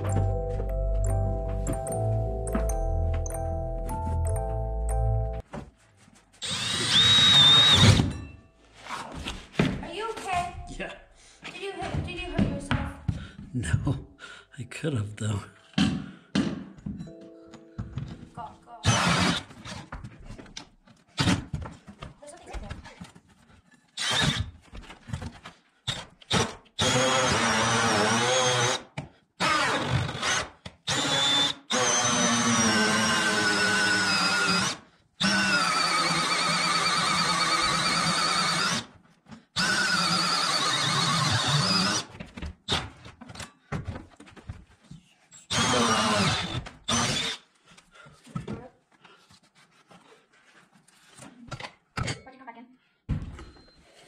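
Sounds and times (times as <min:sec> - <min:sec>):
drill cutting through wood: 0:06.4 - 0:08.2, 0:18.8 - 0:19.8, 0:24.0 - 0:24.5, 0:25.9 - 0:38.9, 0:39.6 - 0:42.1, 0:45.5 - 0:47.5.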